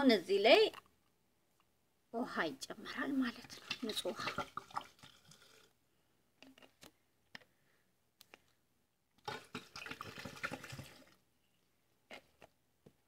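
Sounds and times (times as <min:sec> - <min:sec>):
water pouring into glass jug: 0:03.2 - 0:05.7, 0:09.2 - 0:11.2.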